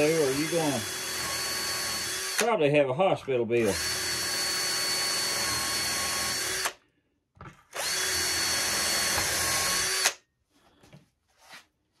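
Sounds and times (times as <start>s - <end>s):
cordless drill whining: 0.0s - 2.6s, 3.5s - 6.8s, 7.7s - 10.3s.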